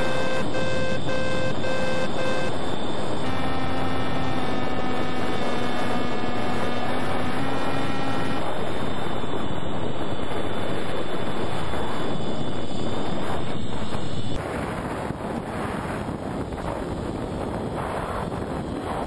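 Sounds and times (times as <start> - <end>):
model plane motor whining: 0.0 - 14.4
wind rush on microphone: 0.0 - 19.0.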